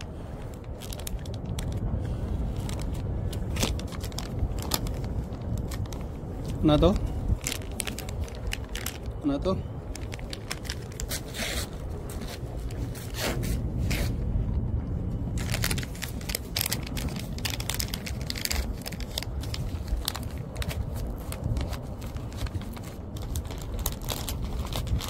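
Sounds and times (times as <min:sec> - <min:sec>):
wind rumble on microphone: 0:00.0 - 0:25.0
dog crunching a treat: 0:06.8 - 0:09.2, 0:15.3 - 0:25.0.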